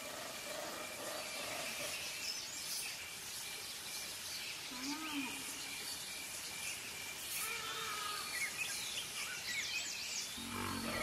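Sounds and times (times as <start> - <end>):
birds chirping and calling: 0.0 - 11.0
steady background hiss: 0.0 - 11.0.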